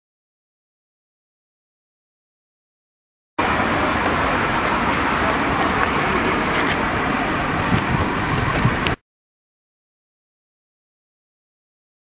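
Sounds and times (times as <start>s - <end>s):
busy outdoor market din: 3.4s - 9.0s.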